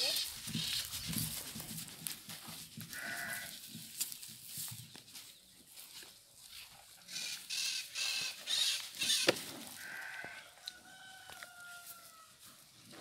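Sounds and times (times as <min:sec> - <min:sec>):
rooster crowing: 0:09.8 - 0:12.4.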